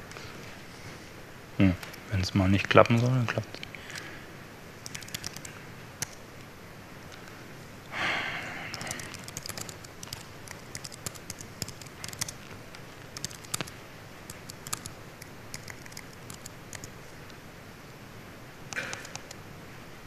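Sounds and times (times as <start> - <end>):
laptop keys typing: 1.7 - 4.1, 4.8 - 6.2, 8.6 - 17.1, 18.7 - 19.4.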